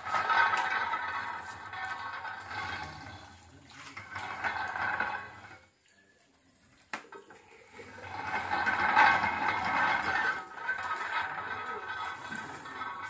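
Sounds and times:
water splashing and running: 0:00.0 - 0:13.0.

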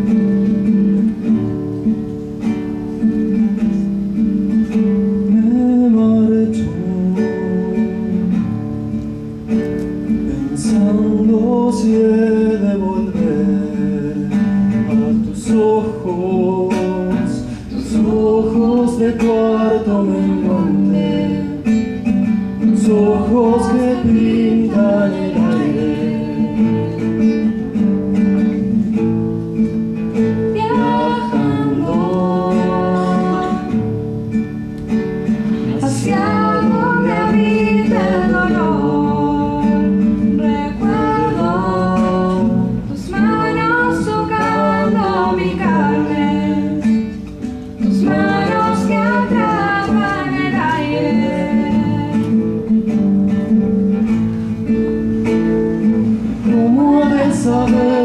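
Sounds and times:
acoustic guitar: 0:00.0 - 0:58.0
woman singing: 0:15.3 - 0:22.0, 0:22.7 - 0:27.6, 0:30.4 - 0:33.9, 0:35.7 - 0:47.1, 0:47.8 - 0:52.6, 0:56.4 - 0:58.0.

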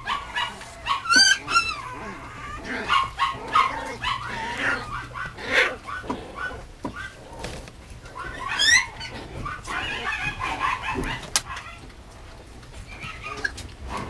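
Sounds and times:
puppy yipping and whimpering: 0:00.0 - 0:07.2, 0:08.2 - 0:11.8, 0:12.9 - 0:13.6
puppy yelping: 0:00.0 - 0:07.3, 0:08.1 - 0:11.9, 0:12.9 - 0:14.0.

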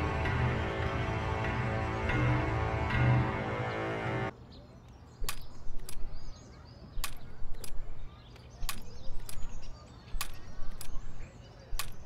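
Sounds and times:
birds chirping faintly: 0:00.0 - 0:12.0
walking frame legs clacking: 0:07.0 - 0:12.0.

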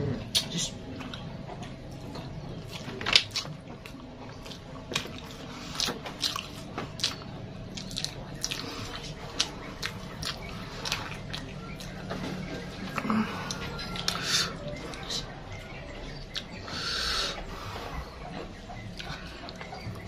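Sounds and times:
wet chewing and lip smacks: 0:00.3 - 0:12.1, 0:12.8 - 0:16.7.

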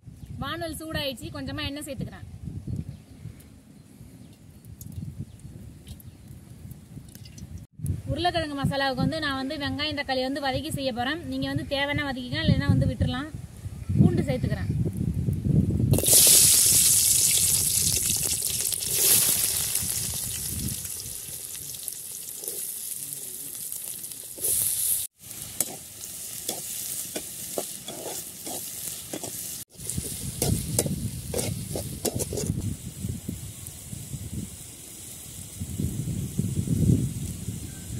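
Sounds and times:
garlic sizzling in hot oil: 0:15.9 - 0:37.9
metal spatula scraping pan: 0:25.6 - 0:32.6.

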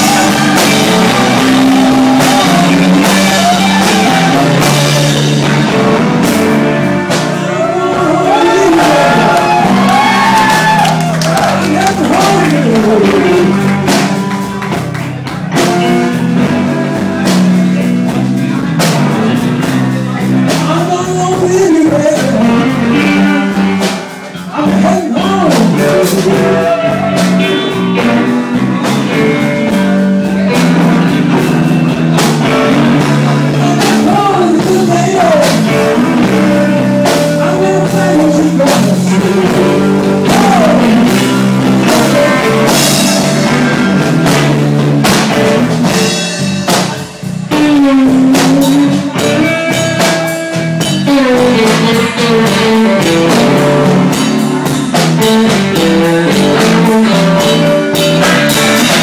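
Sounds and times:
electric guitar lead: 0:00.0 - 0:59.0
live blues band playing: 0:00.0 - 0:59.0.

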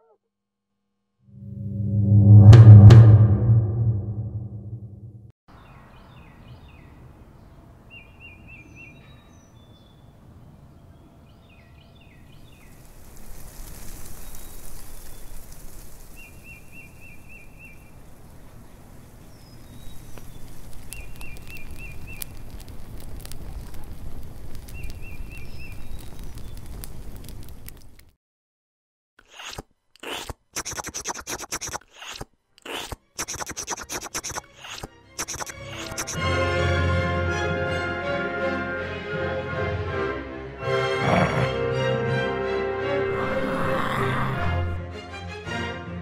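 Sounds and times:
small crackling clicks: 0:12.7 - 0:16.3, 0:19.8 - 0:28.2
birds calling: 0:29.3 - 0:36.2
high chirps: 0:29.3 - 0:36.2
hissing rush: 0:29.3 - 0:36.2
rapid bird trill: 0:29.3 - 0:36.2.

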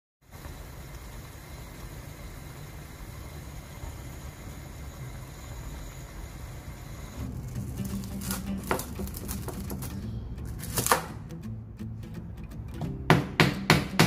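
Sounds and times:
liquid bubbling in a pan: 0:00.2 - 0:07.8
knife cutting on cutting board: 0:08.1 - 0:11.1.

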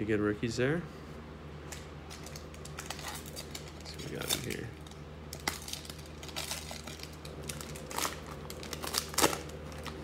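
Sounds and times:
plastic wrapper crinkling: 0:02.1 - 0:10.0.

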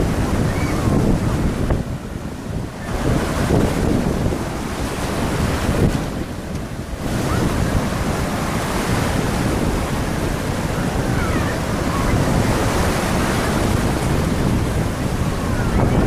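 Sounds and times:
surf breaking on beach: 0:00.0 - 0:16.0
wind buffeting microphone: 0:00.0 - 0:16.0.

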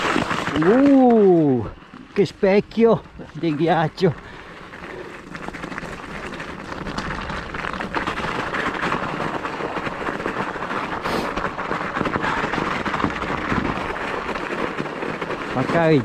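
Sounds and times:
bike tyres crunching on icy gravel: 0:00.0 - 0:16.0.

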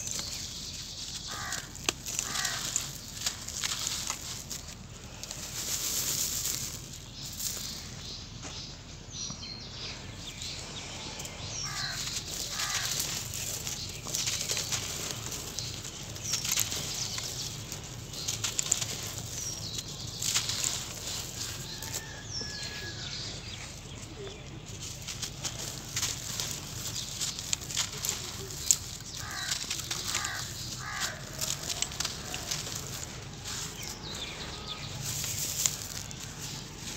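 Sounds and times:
bird calling: 0:00.0 - 0:04.1, 0:10.6 - 0:24.4, 0:26.3 - 0:36.6
grit sifting through wire grate: 0:00.0 - 0:08.0, 0:11.4 - 0:36.9
earth clods crunching: 0:00.0 - 0:08.6, 0:11.3 - 0:36.9.

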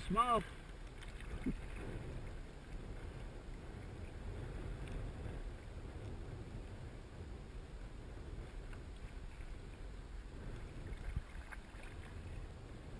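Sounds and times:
water lapping against hull: 0:00.0 - 0:12.9
wind rumble on microphone: 0:00.0 - 0:12.9.

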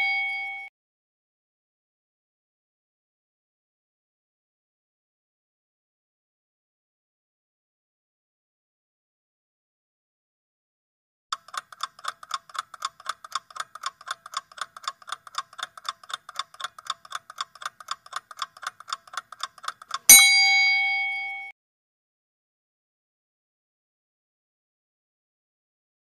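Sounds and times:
bell ding: 0:00.0 - 0:00.7, 0:20.1 - 0:21.5
fast clock ticking: 0:11.3 - 0:20.2.

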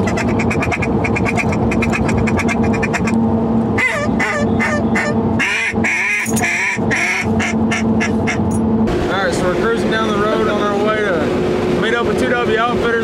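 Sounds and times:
duck calls quacking: 0:00.0 - 0:03.2, 0:03.8 - 0:08.5
truck engine drone: 0:00.0 - 0:13.0.

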